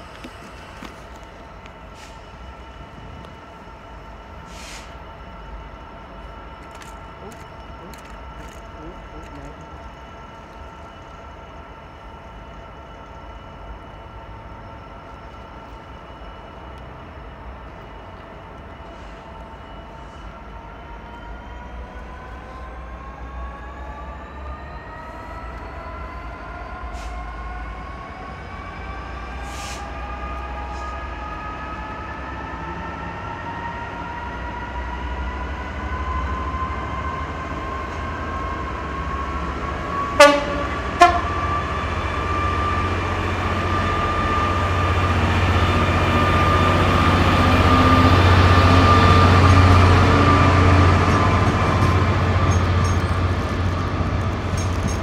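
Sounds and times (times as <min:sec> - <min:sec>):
diesel locomotive engine: 0:00.0 - 0:55.0
train horn toots: 0:40.1 - 0:41.7.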